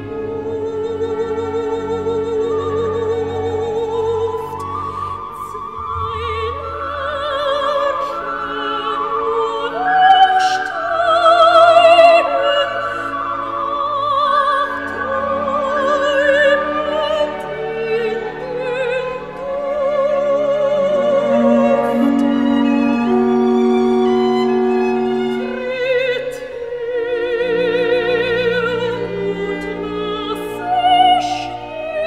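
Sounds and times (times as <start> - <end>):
operatic classical music: 0.0 - 32.0.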